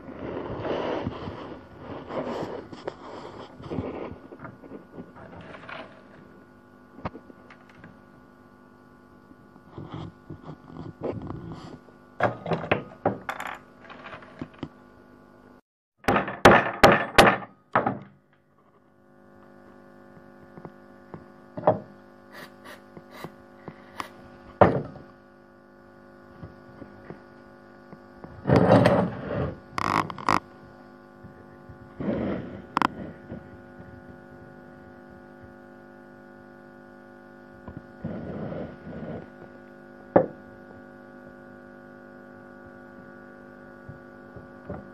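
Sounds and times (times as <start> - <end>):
steady electrical hum: 0.0 - 44.9
wooden pieces knocked and set down: 12.2 - 14.8, 16.0 - 18.2, 21.6 - 21.9, 24.6 - 25.0.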